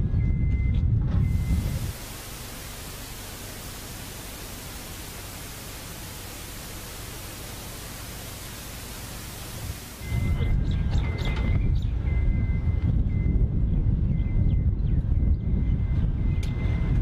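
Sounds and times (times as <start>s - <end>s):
steady static hiss: 1.3s - 10.4s.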